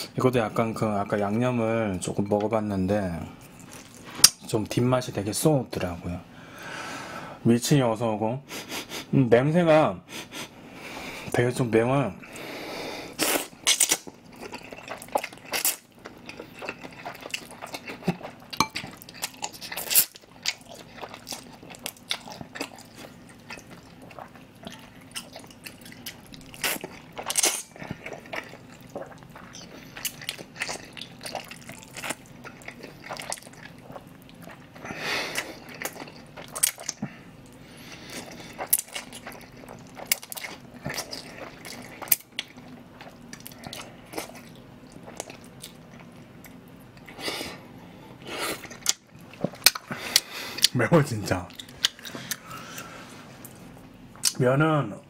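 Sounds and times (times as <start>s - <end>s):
wet chewing: 13.1s - 47.2s, 48.5s - 54.4s.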